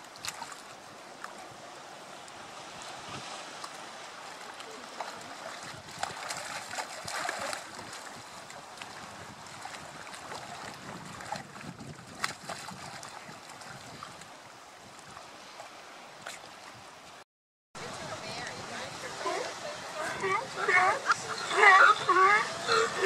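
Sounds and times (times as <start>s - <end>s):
sea lions splashing: 0.0s - 14.2s, 17.8s - 23.0s
surf washing among rocks: 0.0s - 16.9s, 17.8s - 23.0s
wind on microphone: 1.3s - 17.0s, 17.8s - 23.0s
sharp water slap: 5.9s - 7.8s.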